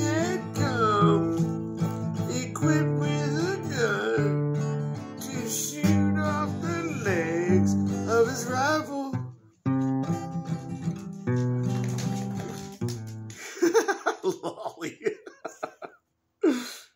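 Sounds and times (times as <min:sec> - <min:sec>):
acoustic guitar strumming: 0:00.0 - 0:13.3.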